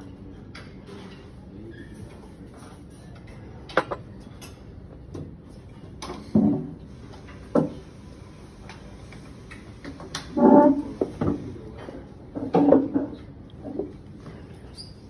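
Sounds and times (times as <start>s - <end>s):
dishes and cutlery clinking: 2.0s - 4.7s.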